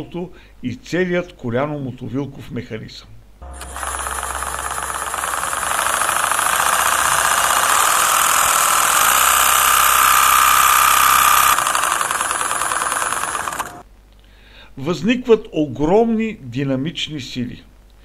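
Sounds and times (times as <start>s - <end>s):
engine mechanical clatter: 3.4s - 13.8s
steady high whine: 3.4s - 13.8s.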